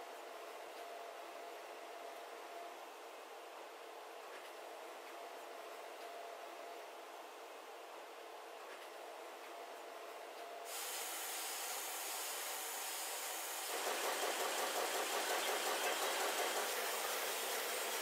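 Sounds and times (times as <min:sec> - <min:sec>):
machine hiss: 0:10.7 - 0:18.0.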